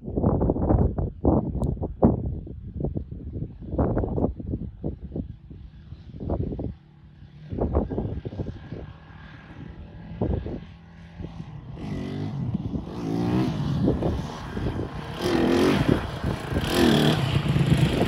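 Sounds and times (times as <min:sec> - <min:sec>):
motorbike engines revving: 0:11.5 - 0:18.0.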